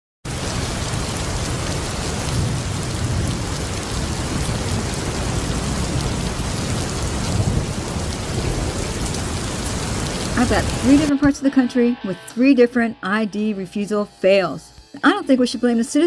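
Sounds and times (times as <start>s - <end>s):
low thunder rumbling: 0.3s - 11.1s
steady rain: 0.3s - 11.1s.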